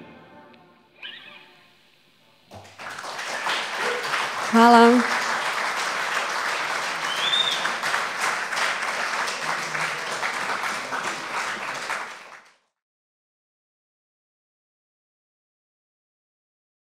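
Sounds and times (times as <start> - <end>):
short high whistle-like tone: 1.0 - 1.6, 7.1 - 7.6
audience applauding: 2.5 - 12.6.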